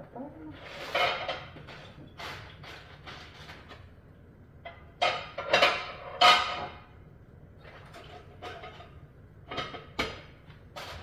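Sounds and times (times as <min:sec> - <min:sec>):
metal pots clattering on stovetop: 0:00.7 - 0:03.7, 0:04.7 - 0:06.9, 0:07.9 - 0:11.0.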